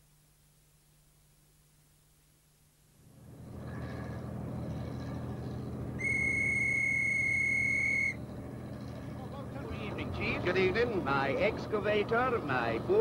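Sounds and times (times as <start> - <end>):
low mechanical hum: 0.0 - 13.0
high-pitched whistle tone: 6.0 - 8.2.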